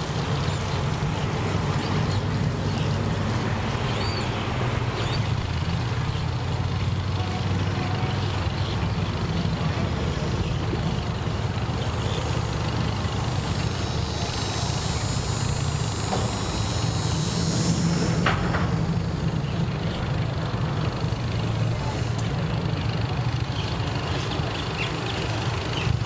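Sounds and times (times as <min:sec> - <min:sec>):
engine idling: 0:00.0 - 0:26.0
high steady hiss: 0:10.8 - 0:23.4.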